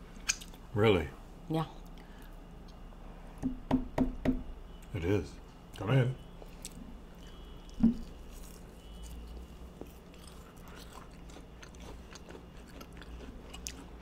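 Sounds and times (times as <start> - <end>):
chewing and wet mouth sounds: 0.2 - 0.6, 6.4 - 14.0.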